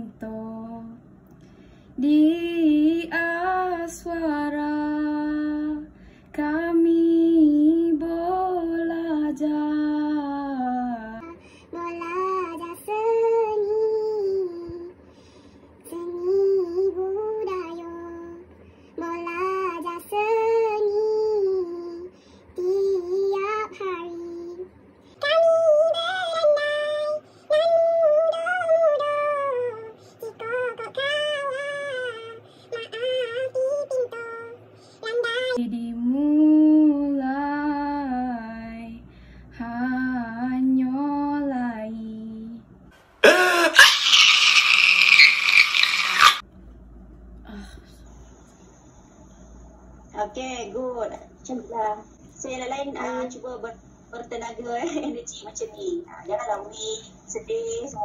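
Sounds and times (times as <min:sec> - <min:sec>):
unaccompanied singing voices: 0:25.2 - 0:39.0
man screaming: 0:43.2 - 0:46.4.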